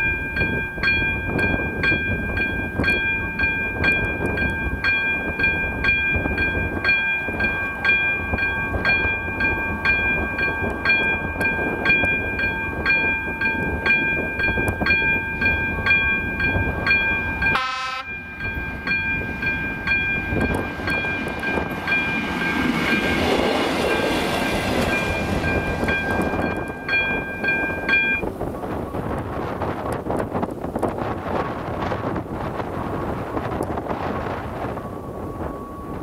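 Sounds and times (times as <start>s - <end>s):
level crossing warning bell: 0.0s - 29.3s, 33.1s - 36.0s
rail noise rumbling: 0.0s - 36.0s
wind: 0.0s - 36.0s
train horn note: 17.5s - 18.2s.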